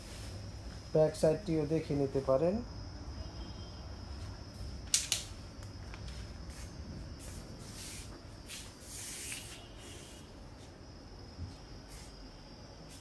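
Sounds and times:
sharp clicks: 4.9 - 5.7.

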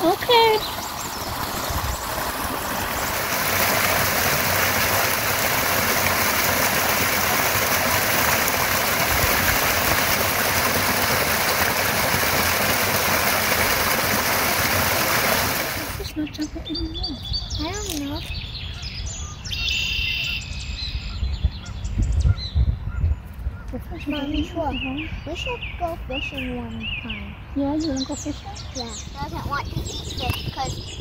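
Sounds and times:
waterfall splashing into pool: 0.0 - 16.1.

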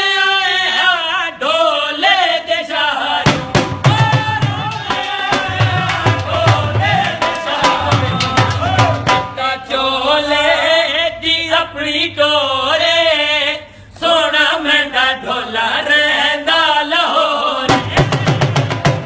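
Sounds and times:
dhol drum beats: 3.2 - 9.6, 17.7 - 19.0.

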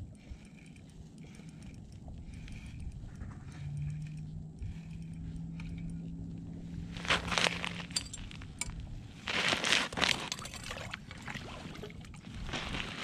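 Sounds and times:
low steady hum: 0.0 - 13.0
slush and ice crunching: 6.8 - 13.0.

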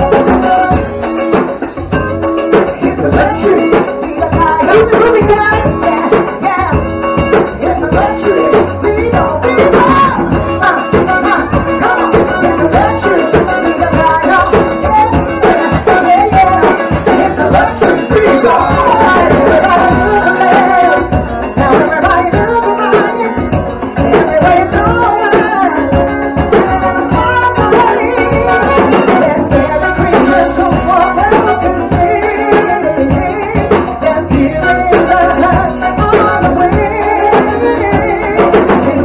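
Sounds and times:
person singing: 0.0 - 39.0
upbeat music with drum beat: 0.0 - 39.0.

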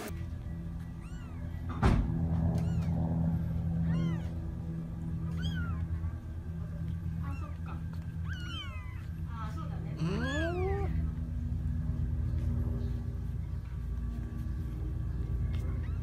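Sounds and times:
low hum: 0.0 - 16.0
kitten mewing: 10.0 - 11.0.

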